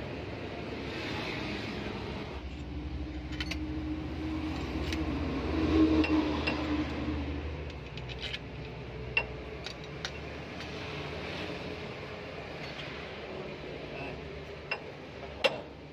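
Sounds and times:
low mechanical hum: 0.0 - 15.9.

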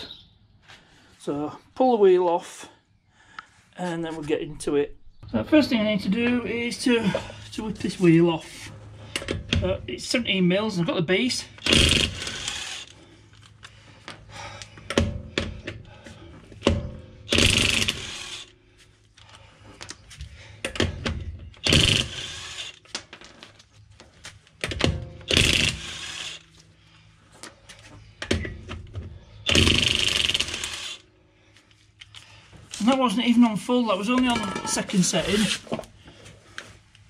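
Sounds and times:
impact wrench hammering: 16.6 - 18.4, 24.6 - 26.4, 29.5 - 30.9.

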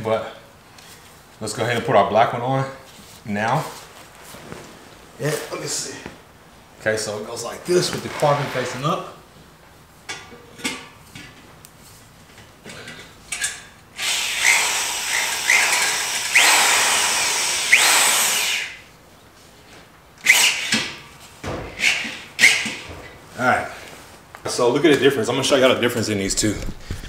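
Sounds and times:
cordless power driver whining: 14.0 - 18.8.

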